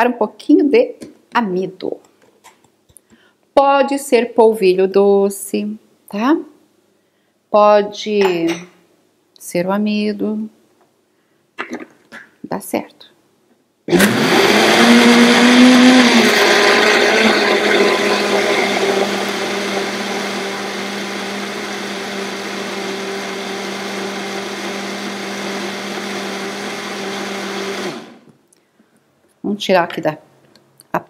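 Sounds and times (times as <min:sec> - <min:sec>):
blender running: 0:13.9 - 0:28.3.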